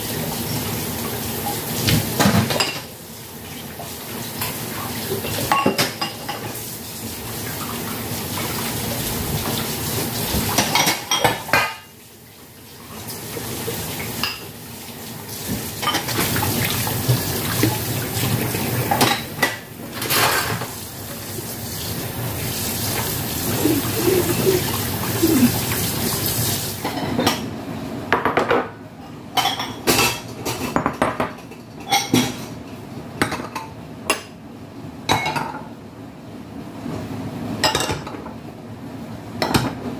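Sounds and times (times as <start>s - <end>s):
tap water running into sink: 3.6s - 11.6s, 12.8s - 19.4s, 20.0s - 26.9s
dishes clinking: 5.3s - 6.5s, 29.4s - 32.4s.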